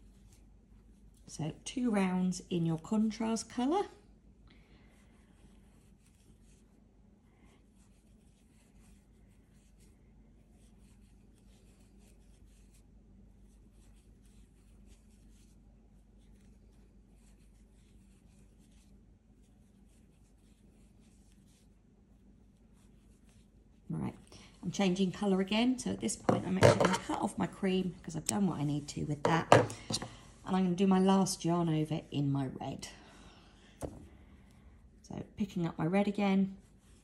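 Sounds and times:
low steady hum: 0.0s - 37.0s
yarn scratching with crochet hook: 22.6s - 31.6s.

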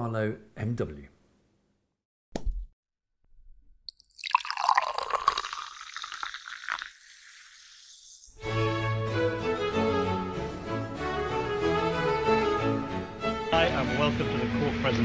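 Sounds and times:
liquid splashing: 3.9s - 8.4s.

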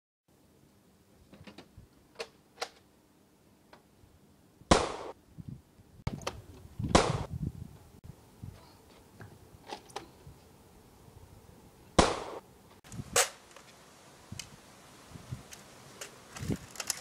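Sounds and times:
gunshot-like bangs: 4.7s - 5.2s, 6.9s - 7.3s, 12.0s - 12.4s.

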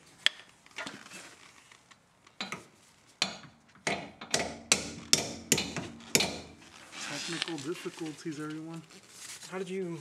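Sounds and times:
hammer striking metal bolt: 3.2s - 6.5s.

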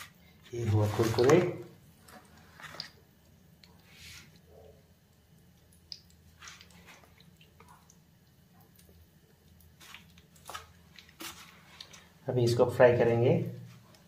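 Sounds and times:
wet squishes of chicken: 5.1s - 12.2s.

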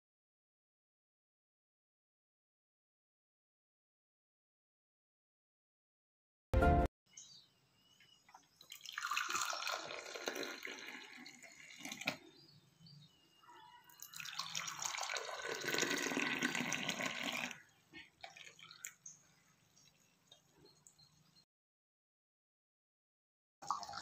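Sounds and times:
hot drink pouring into mugs: 8.6s - 12.4s, 13.9s - 19.1s, 23.6s - 24.0s.

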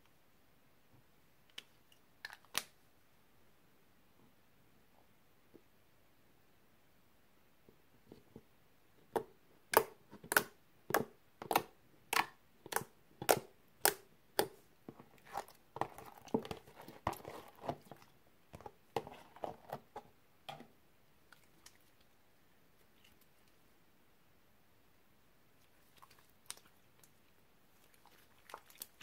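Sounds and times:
slime wet squishing: 9.7s - 19.8s, 21.2s - 22.2s, 25.6s - 29.0s.

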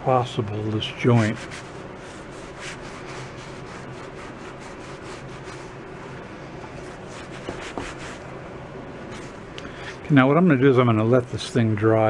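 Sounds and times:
cloth rag rubbing wood: 1.0s - 8.3s.

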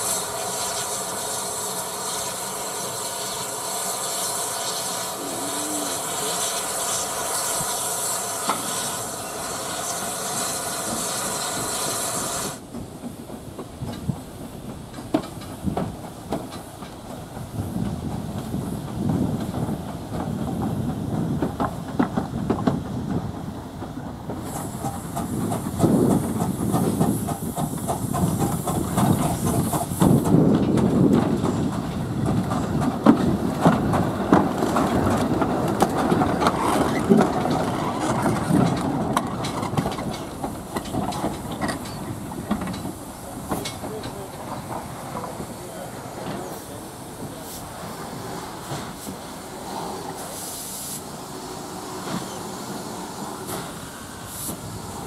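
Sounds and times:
steam hissing: 0.0s - 22.0s, 22.8s - 55.0s
wheels clicking over rail joints: 12.5s - 47.6s
locomotive rumbling and knocking: 12.6s - 50.2s.

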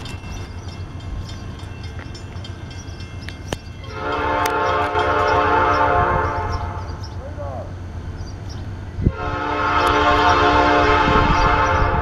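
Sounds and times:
train rumbling: 0.0s - 12.0s
locomotive air horn blast: 3.9s - 7.0s, 9.0s - 12.0s.

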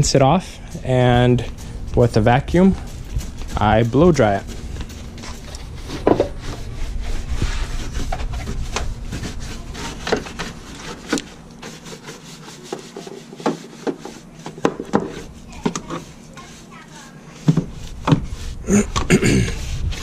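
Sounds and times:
low rumble: 0.0s - 9.8s
brush scraping engine surfaces: 0.6s - 20.0s.

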